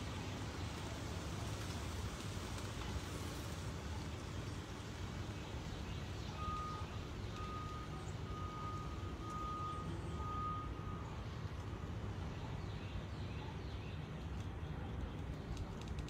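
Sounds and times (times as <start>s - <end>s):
reversing alarm beeping: 6.3s - 12.0s.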